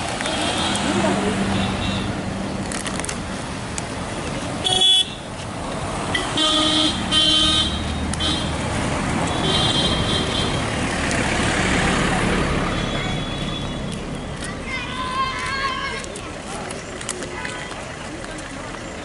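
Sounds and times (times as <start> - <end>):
road traffic noise: 0.0 - 19.0
vehicle horns tooting: 4.6 - 5.3, 6.1 - 8.6, 9.2 - 10.6.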